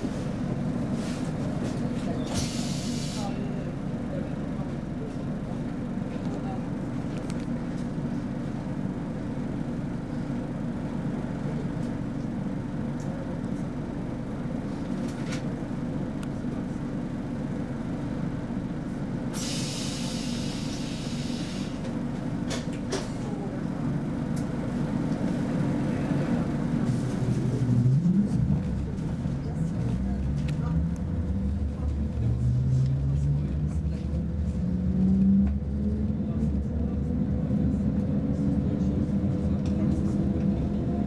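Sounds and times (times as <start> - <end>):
low hum of train equipment: 0.0 - 41.0
compressed air hiss: 19.4 - 21.7.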